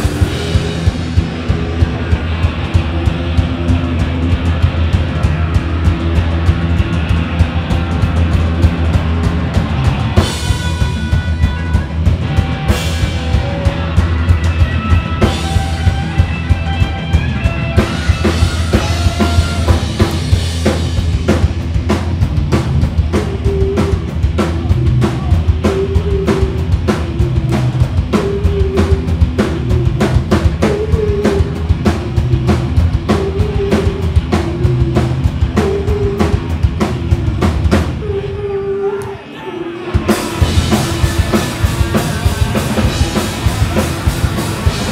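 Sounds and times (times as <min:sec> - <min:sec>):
drum kit beat: 0:00.0 - 0:38.1, 0:39.9 - 0:44.9
bass guitar: 0:00.0 - 0:44.9
electric guitar: 0:00.0 - 0:44.9.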